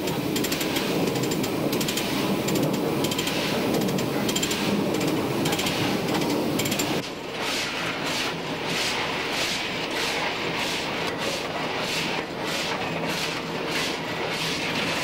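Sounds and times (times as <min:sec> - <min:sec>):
locomotive rumble with metallic rattling: 0:00.0 - 0:07.0
steam locomotive hissing chuffs: 0:00.0 - 0:07.0.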